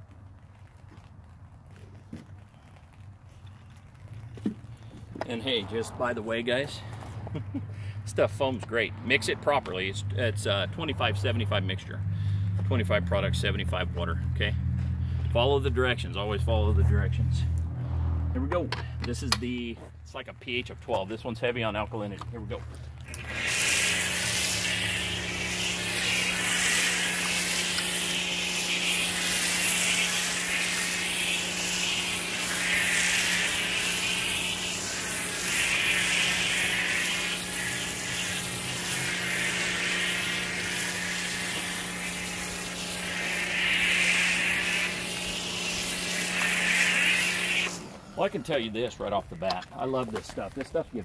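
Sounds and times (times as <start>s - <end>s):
pressure washer humming: 21.7s - 49.3s
foam spray hissing: 22.8s - 49.0s.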